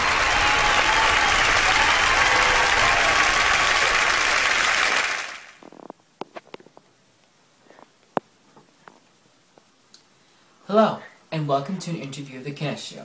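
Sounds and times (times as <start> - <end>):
crowd applause: 0.0 - 5.6.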